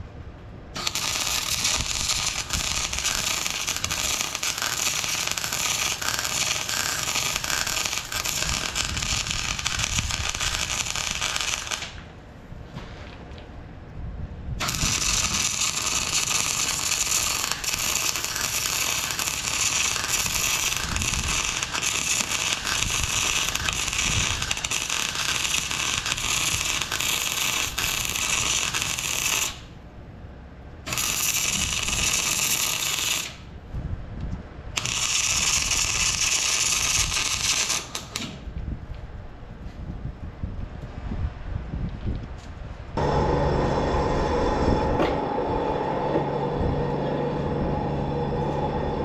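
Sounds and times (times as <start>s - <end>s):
welding arc crackling: 0.8s - 12.0s, 14.6s - 29.7s, 30.9s - 33.4s, 34.8s - 38.5s.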